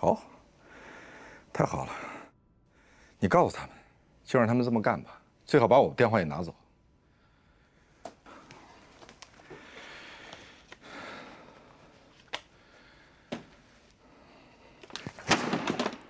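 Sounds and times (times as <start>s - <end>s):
papers rustling: 8.4s - 10.8s.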